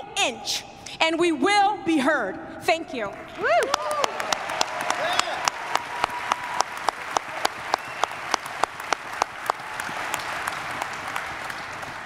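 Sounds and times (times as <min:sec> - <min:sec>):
audience applauding: 0:03.4 - 0:12.0
loud steady hand claps: 0:03.5 - 0:12.0.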